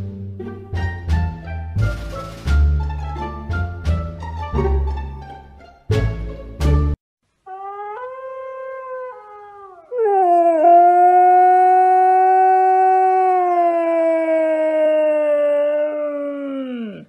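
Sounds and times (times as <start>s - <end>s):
husky howling: 7.5s - 17.0s.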